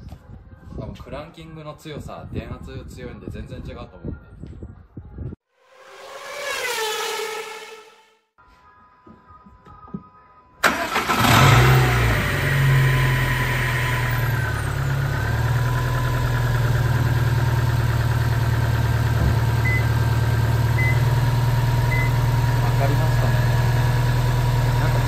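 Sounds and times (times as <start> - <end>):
car engine starting and idling: 10.6 - 25.0.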